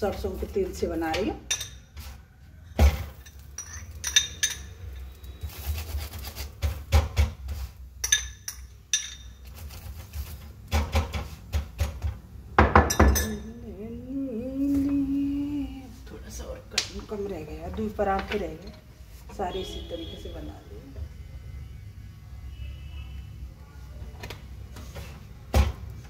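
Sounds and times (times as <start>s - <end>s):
utensils clattering: 2.8s - 6.8s
spoon clinking on glass bowl: 3.2s - 5.2s, 8.0s - 9.4s, 12.9s - 13.5s.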